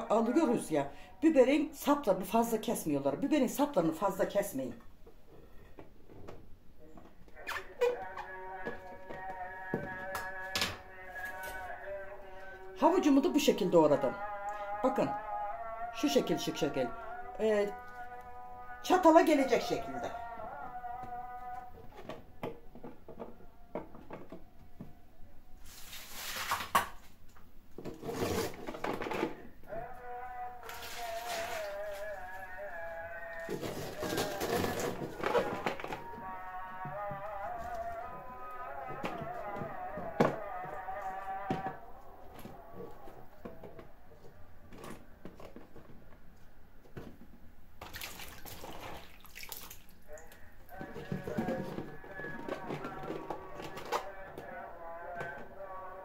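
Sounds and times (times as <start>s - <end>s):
rustling hissing noise: 25.6s - 26.6s
water splashing in a bowl: 30.6s - 32.4s, 47.8s - 50.4s.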